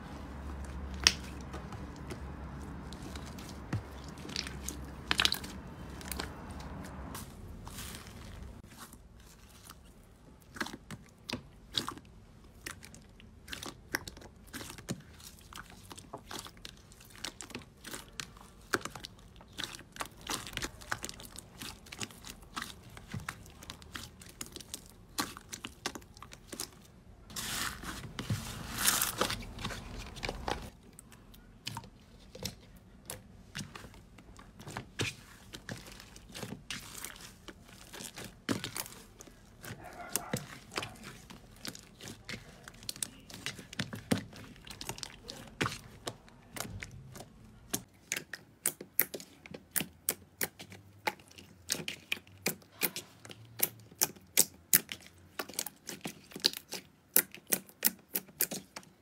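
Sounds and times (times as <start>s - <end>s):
slime crackling and squishing: 0.0s - 59.0s.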